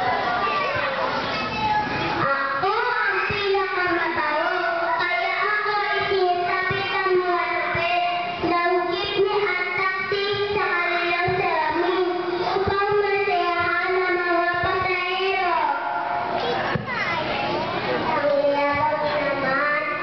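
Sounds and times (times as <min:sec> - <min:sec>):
girl singing into microphone: 0:02.2 - 0:16.2, 0:18.1 - 0:20.0.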